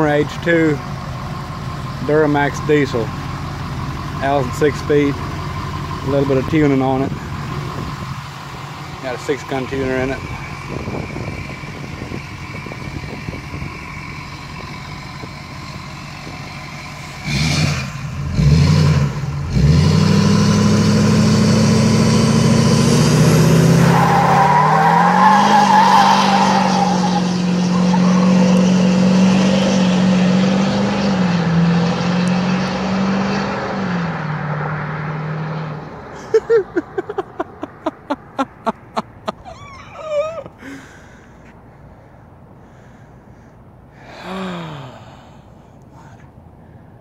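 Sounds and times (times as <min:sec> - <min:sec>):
diesel engine revving: 0:00.0 - 0:39.3
tires squealing: 0:08.6 - 0:41.0.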